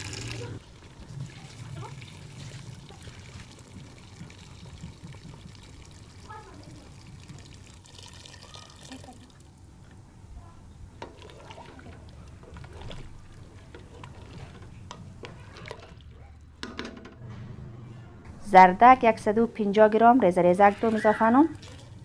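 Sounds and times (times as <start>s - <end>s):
boiling water pouring: 0.0s - 9.9s, 10.9s - 16.0s, 20.7s - 22.0s
wooden spoon stirring in a pot: 0.6s - 8.1s, 10.9s - 16.1s.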